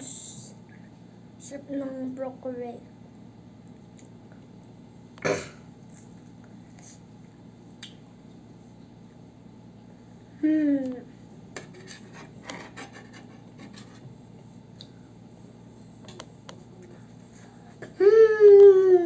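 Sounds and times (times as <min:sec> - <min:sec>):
spoon scraping on a plate: 0:11.6 - 0:14.1
child vocalizing: 0:18.0 - 0:19.0.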